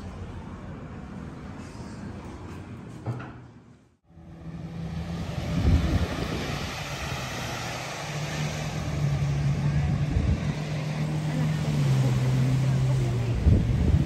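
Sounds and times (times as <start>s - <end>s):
jet ski and boat engines: 4.1s - 14.0s
wind and surf rushing: 4.3s - 14.0s
wind buffeting microphone: 5.0s - 14.0s.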